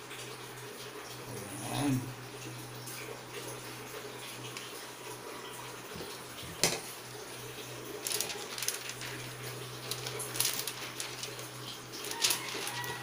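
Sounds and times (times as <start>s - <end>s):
aluminium foil crinkling: 7.8s - 13.0s.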